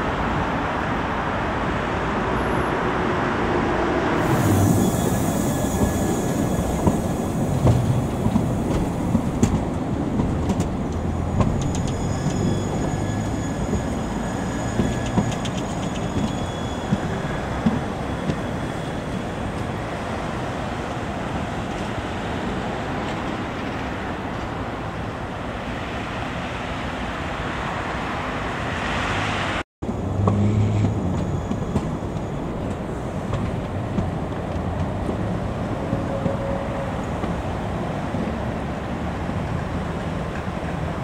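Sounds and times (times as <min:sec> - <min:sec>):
tram wheels rumbling on rails: 0:00.0 - 0:41.0.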